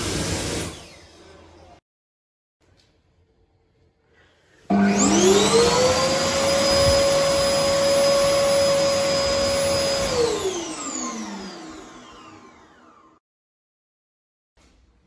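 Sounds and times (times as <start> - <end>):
hand dryer motor whine: 4.7 - 13.2.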